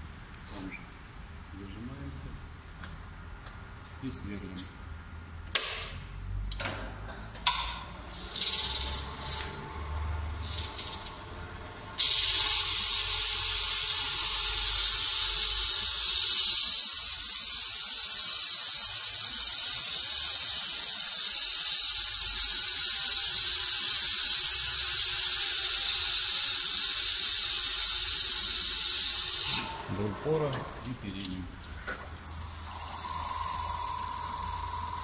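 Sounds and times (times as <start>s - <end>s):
glass drill grinding hiss: 8.0s - 11.2s, 12.0s - 30.4s, 31.6s - 35.0s.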